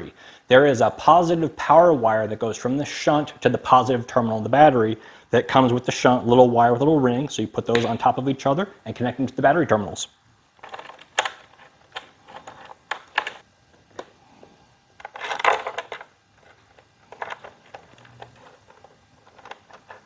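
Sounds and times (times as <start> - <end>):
handling noise: 10.5 - 20.0.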